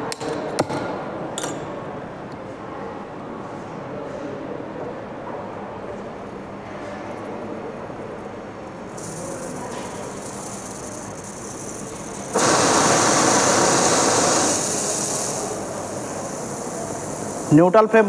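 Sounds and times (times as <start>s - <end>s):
welding torch flame hissing: 8.9s - 18.0s.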